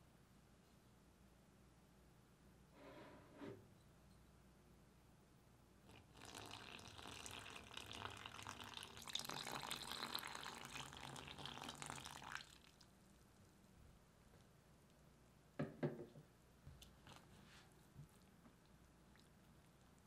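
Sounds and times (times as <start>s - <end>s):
water pouring into flour: 5.9s - 13.0s.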